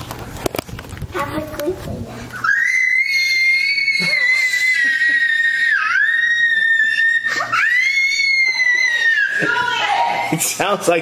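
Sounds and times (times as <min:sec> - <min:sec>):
child screeching: 0:02.4 - 0:10.3.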